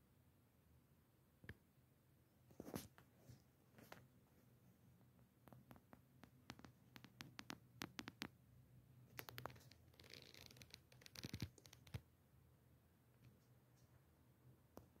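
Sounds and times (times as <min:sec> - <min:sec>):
scratchy rustles: 0:09.1 - 0:12.0.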